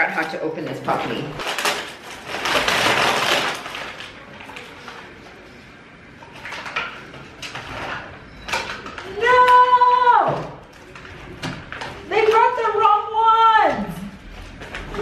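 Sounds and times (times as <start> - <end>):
parcel wrapping rustling: 0.0 - 10.0
mailer tearing open: 1.4 - 5.2.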